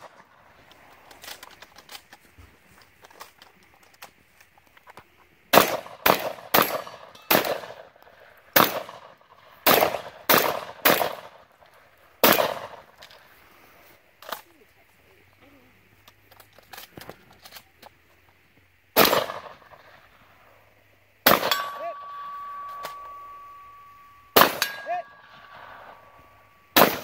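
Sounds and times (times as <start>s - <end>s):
shotgun shots: 5.5s - 7.9s, 8.6s - 11.5s, 12.2s - 13.0s, 19.0s - 20.1s, 21.2s - 23.2s, 24.4s - 27.0s.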